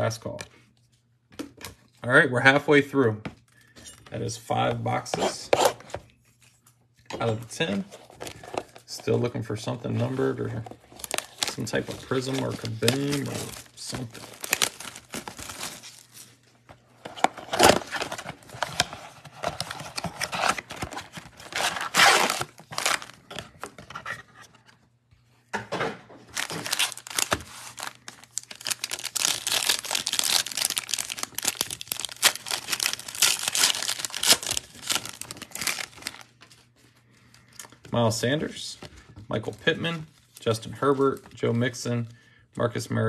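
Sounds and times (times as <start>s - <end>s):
foil wrappers crinkling and tearing: 10.0s - 16.4s, 17.0s - 23.3s, 26.3s - 36.7s.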